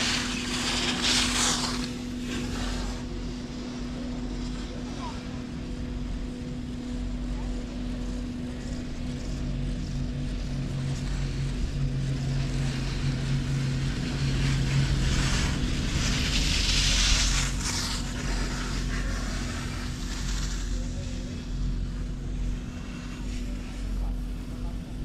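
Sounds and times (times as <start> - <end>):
hissing noise: 0.0 - 3.2
low mechanical hum: 0.0 - 25.0.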